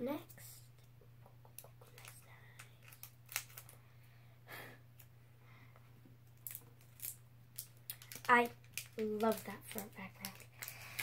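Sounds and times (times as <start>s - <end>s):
foil wrapper rustling and tearing: 2.8s - 3.8s, 6.4s - 11.0s.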